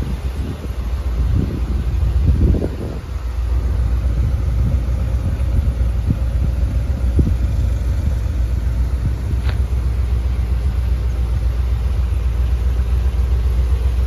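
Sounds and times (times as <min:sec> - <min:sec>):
car engine idling: 0:00.0 - 0:14.0.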